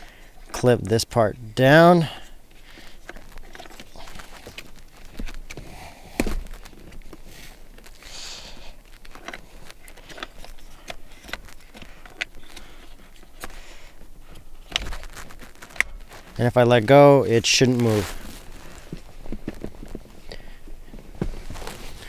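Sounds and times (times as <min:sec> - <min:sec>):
brief rustles: 0:17.6 - 0:22.0.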